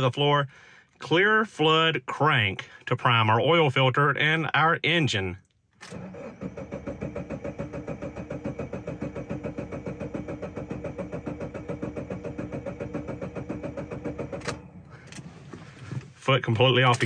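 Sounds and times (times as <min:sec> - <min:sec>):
car starter cranking engine: 0:05.7 - 0:17.0.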